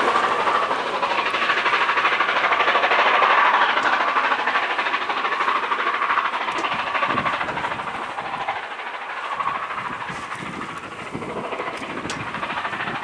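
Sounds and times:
train wheels rolling on rails: 0:00.0 - 0:13.0
wind rumbling on microphone: 0:06.5 - 0:13.0.

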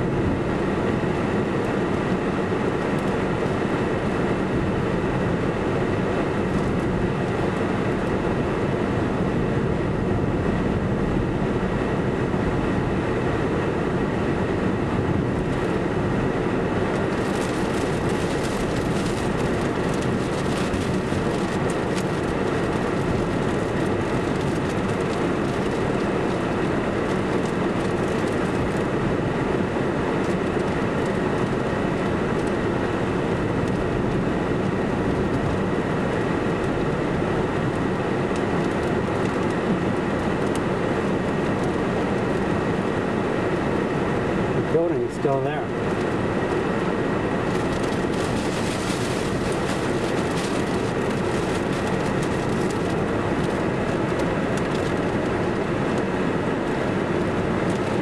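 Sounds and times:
fan rushing with faint whine: 0:00.0 - 0:58.0
roar of tornado winds: 0:00.0 - 0:58.0
crackle and hiss: 0:16.8 - 0:43.8, 0:44.7 - 0:55.2.

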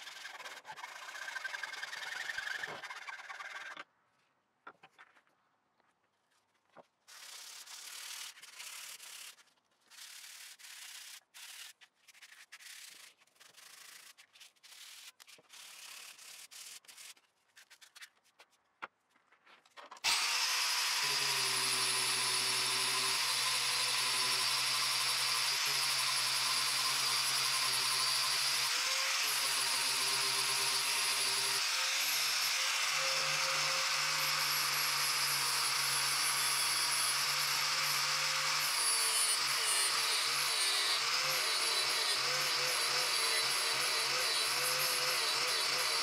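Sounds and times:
sandpaper rubbing wood: 0:00.0 - 0:03.7, 0:07.1 - 0:18.4
angle grinder whining: 0:20.0 - 0:46.0.

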